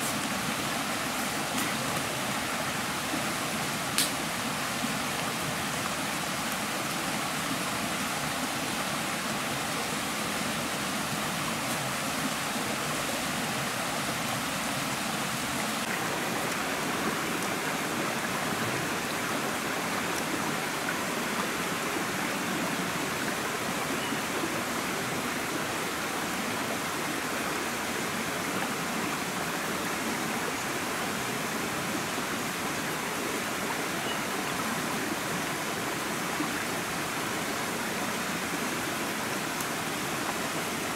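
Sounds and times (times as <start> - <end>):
stream running over rocks: 0.0 - 40.9.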